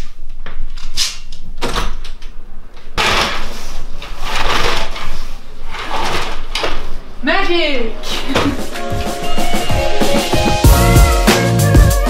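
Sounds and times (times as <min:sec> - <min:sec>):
curtains dragged along rail: 0:03.5 - 0:06.8.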